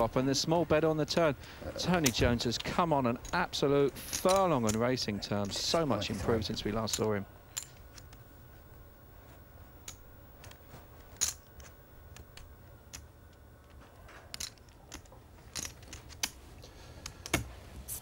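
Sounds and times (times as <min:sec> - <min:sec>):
low room hum: 0:00.0 - 0:18.0
poker chips clicking: 0:04.0 - 0:05.6, 0:14.3 - 0:16.4.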